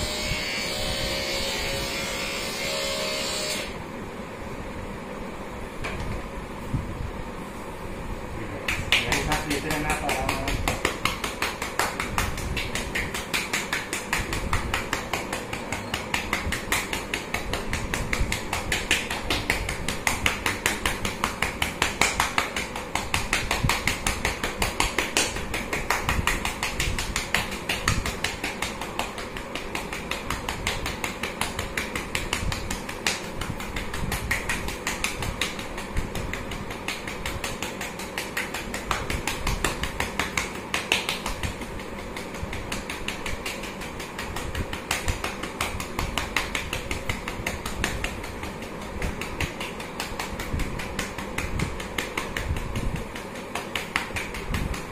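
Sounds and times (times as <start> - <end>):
gloved hand patting back: 8.6 - 54.9.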